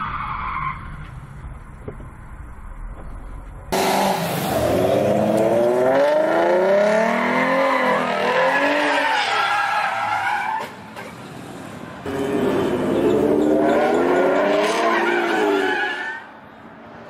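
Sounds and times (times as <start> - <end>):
tires squealing: 0.0 - 1.2, 3.8 - 11.5, 12.1 - 16.4.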